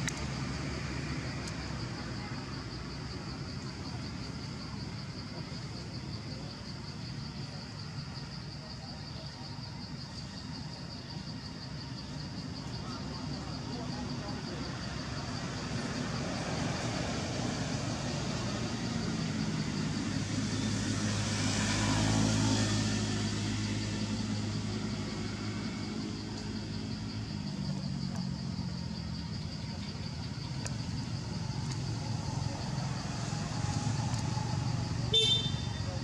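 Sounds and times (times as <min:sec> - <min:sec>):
traffic noise: 0:00.0 - 0:36.0
vehicle engine humming: 0:11.6 - 0:36.0.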